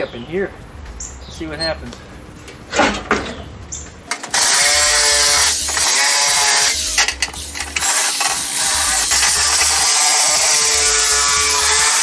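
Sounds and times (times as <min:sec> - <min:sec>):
power saw cutting plastic: 0:04.1 - 0:12.0.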